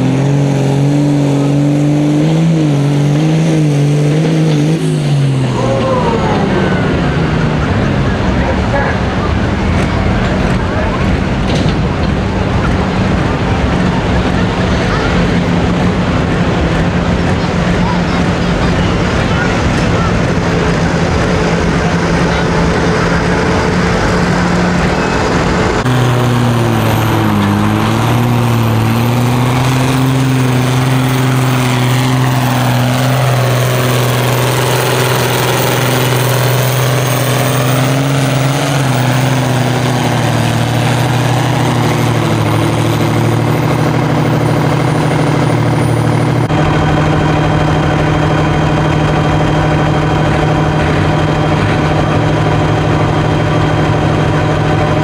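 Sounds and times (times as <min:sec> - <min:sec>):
tractor engines running hard: 0:00.0 - 0:55.0.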